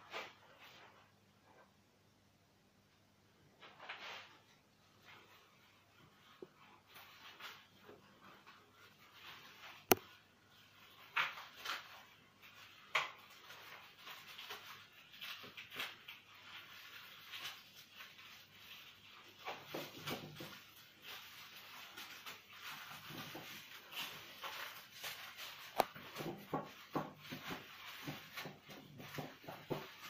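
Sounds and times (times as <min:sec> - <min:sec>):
cling film crinkling: 0:08.4 - 0:30.0.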